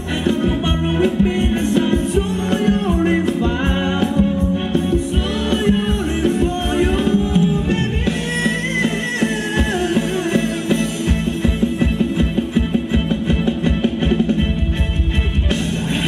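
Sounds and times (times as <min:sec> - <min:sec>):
person singing: 0:00.0 - 0:11.3
live band dance music: 0:00.0 - 0:16.0.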